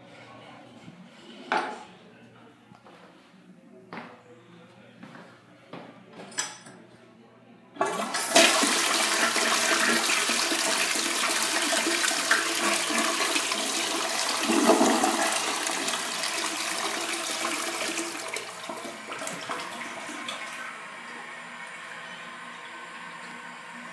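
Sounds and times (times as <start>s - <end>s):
toilet flushing water rush: 7.8s - 23.9s.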